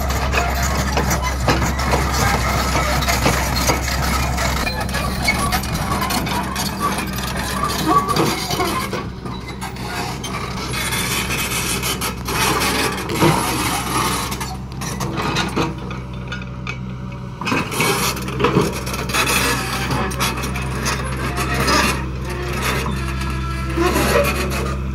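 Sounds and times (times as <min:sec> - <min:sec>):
hydraulic breaker hammering rock: 0:00.0 - 0:09.7
diesel engine running: 0:00.0 - 0:24.9.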